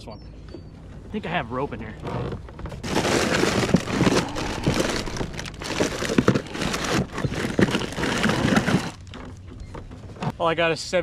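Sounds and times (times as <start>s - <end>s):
items clicking against case: 2.6s - 10.0s
plastic packages crinkling: 2.8s - 9.1s
rummaging in plastic box: 2.8s - 9.4s.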